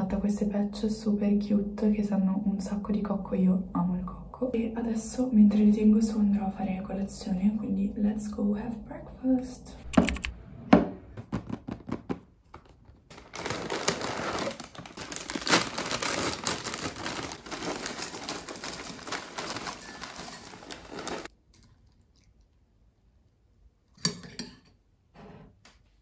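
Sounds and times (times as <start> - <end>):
plastic bag crinkling: 12.5 - 21.3
cereal pouring into cup: 13.1 - 21.3.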